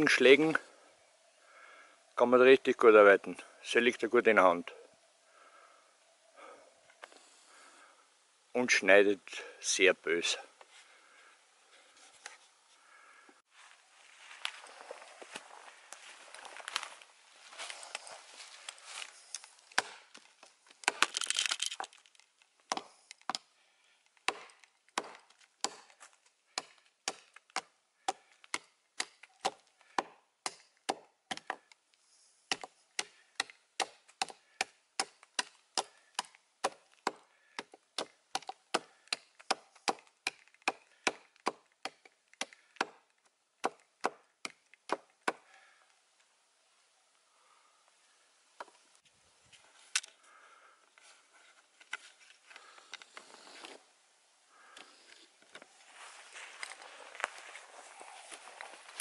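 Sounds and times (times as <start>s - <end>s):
rustling in dry leaves: 13.5s - 22.2s, 55.6s - 59.0s
hatchet chopping wood: 19.8s - 20.1s, 20.8s - 21.1s, 22.7s - 23.5s, 24.2s - 26.0s, 26.6s - 31.6s, 32.5s - 45.4s.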